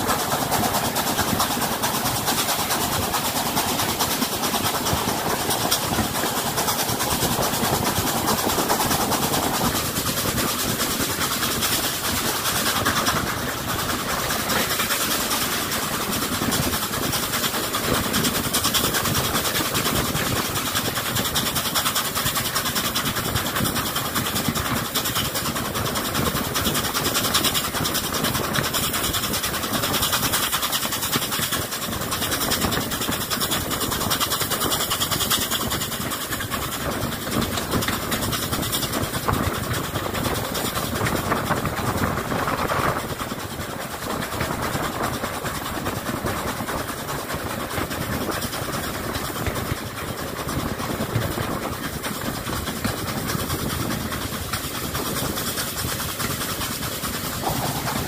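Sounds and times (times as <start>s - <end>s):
train wheels rolling: 0.0s - 58.0s
wind rushing: 57.2s - 58.0s.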